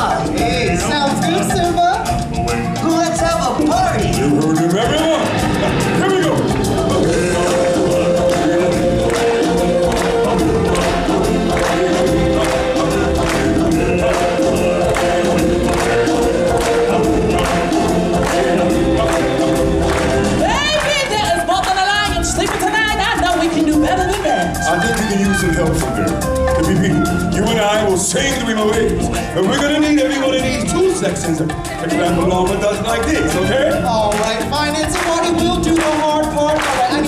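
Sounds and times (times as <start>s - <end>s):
percussion beat: 0.0s - 37.0s
choir singing sustained notes: 5.2s - 20.5s.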